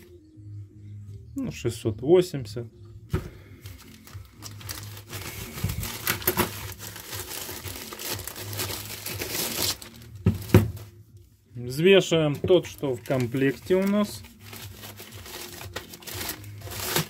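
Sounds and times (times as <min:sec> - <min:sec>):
plastic bag crinkling: 0:03.6 - 0:10.9, 0:12.3 - 0:17.0.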